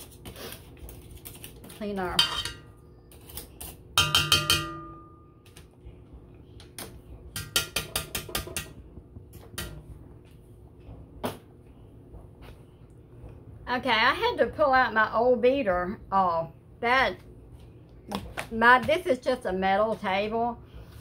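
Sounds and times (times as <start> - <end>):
mixer beaters clinking on metal bowl: 2.1 - 2.7.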